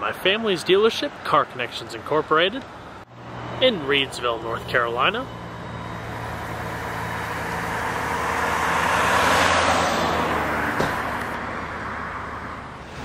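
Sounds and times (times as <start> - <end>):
car passing: 2.8 - 13.0.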